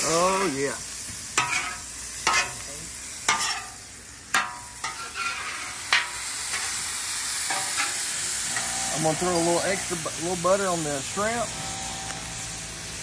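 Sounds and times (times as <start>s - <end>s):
shrimp sizzling on griddle: 0.0s - 13.0s
metal spatula scraping and clacking: 1.4s - 2.6s, 3.3s - 6.7s, 7.5s - 8.7s.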